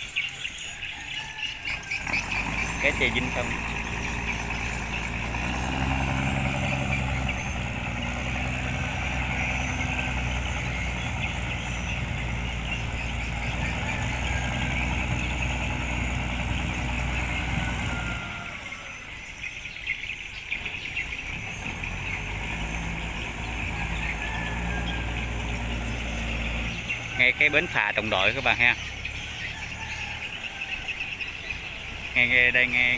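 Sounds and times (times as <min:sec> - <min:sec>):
boat engine running: 0:01.9 - 0:19.7.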